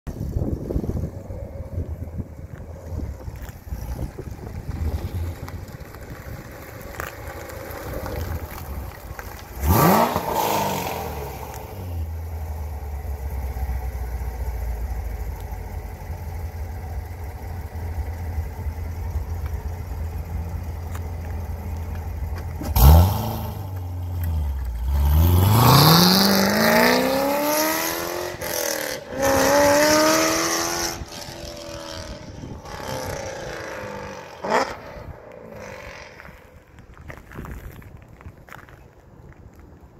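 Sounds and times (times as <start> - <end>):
car engine idling and revving: 0.1 - 38.8
car accelerating hard: 0.8 - 12.1, 22.5 - 36.3.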